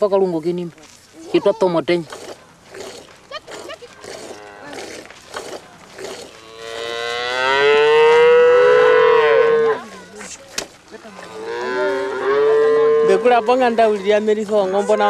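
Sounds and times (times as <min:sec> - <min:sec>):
cattle mooing: 0:02.1 - 0:10.0, 0:11.0 - 0:15.0.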